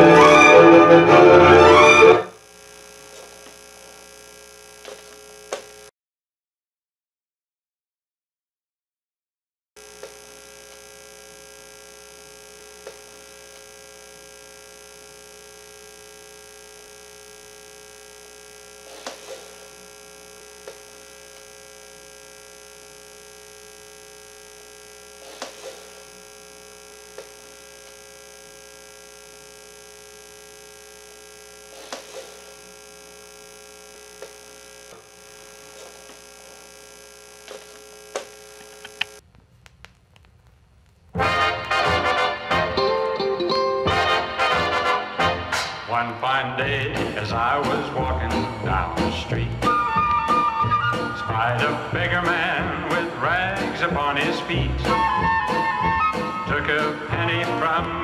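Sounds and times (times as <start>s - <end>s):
amplifier hum and hiss: 0.0s - 5.9s, 9.8s - 58.0s
faint clicks: 37.4s - 41.2s.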